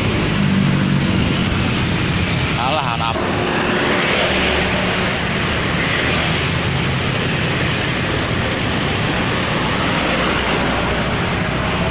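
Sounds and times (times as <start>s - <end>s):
motorcycles passing: 0.0s - 11.9s
passing cars: 0.0s - 11.9s
truck passing close by: 0.0s - 11.9s.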